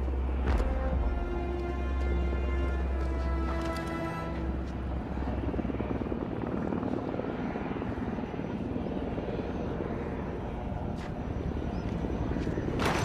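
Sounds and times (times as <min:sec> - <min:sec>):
helicopter rotor chopping: 0:02.2 - 0:13.0.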